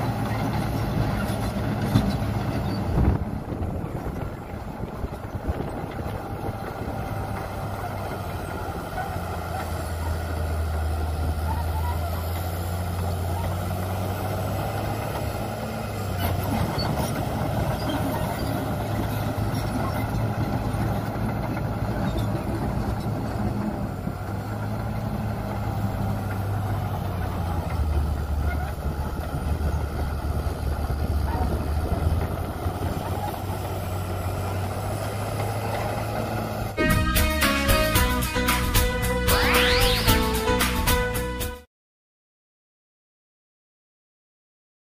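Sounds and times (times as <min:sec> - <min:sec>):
bulldozer diesel engine droning: 0:00.0 - 0:41.7.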